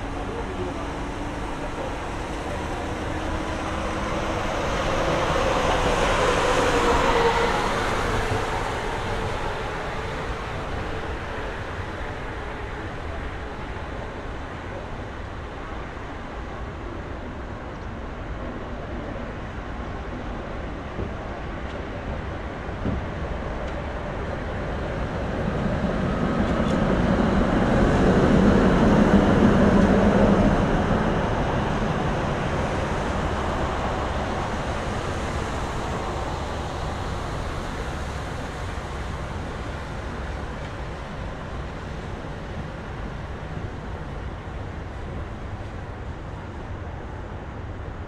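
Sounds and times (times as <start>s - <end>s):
city background hum: 0.0s - 48.0s
tram rumbling on rails: 0.0s - 48.0s.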